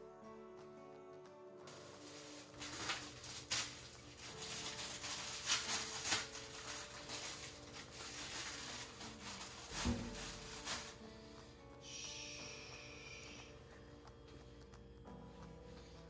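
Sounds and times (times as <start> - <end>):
plastic bag crinkling: 1.7 - 11.1.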